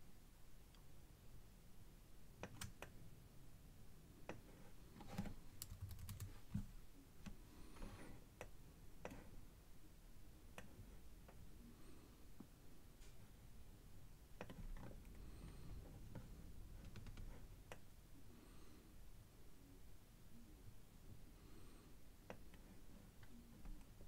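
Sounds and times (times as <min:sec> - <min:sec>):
computer keyboard clicks: 0:05.6 - 0:06.3.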